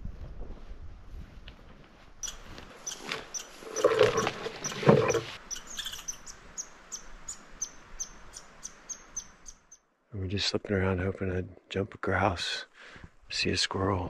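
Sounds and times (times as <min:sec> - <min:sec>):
footsteps crunching through brush: 0:00.1 - 0:05.4
small animal chirping: 0:05.5 - 0:09.8.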